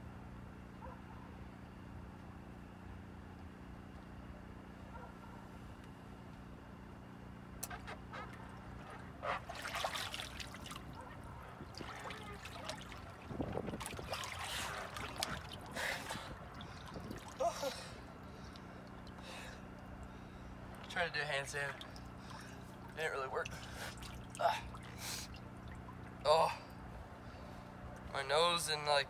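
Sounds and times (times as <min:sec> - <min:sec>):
steady low hum: 0:00.0 - 0:29.0
water splashing and sloshing: 0:07.6 - 0:28.1.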